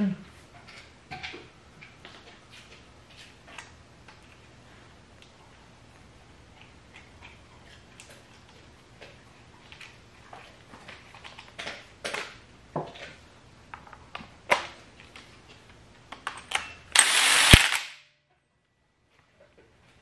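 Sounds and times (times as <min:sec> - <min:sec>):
impact wrench rattling: 0:17.0 - 0:17.9.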